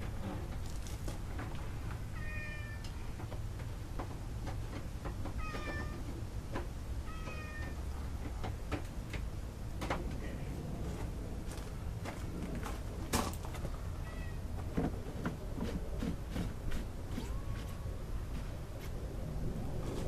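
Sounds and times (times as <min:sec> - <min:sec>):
cat meowing: 0:02.2 - 0:02.8, 0:07.1 - 0:07.8, 0:14.0 - 0:14.4.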